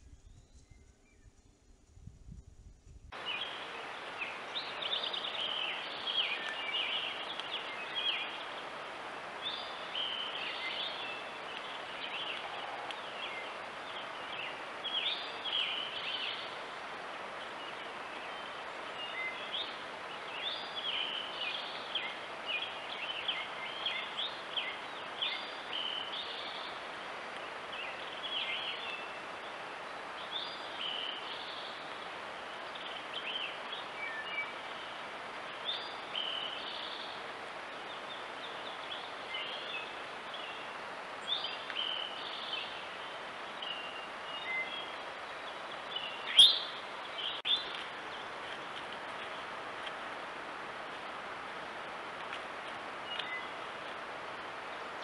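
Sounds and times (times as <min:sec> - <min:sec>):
microphone hiss: 0:00.0 - 0:55.0
birds chirping and singing: 0:43.6 - 0:48.2.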